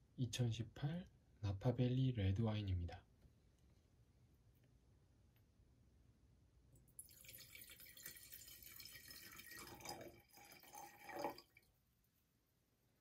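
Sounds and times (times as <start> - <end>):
wine pouring into a glass: 6.9 - 11.7.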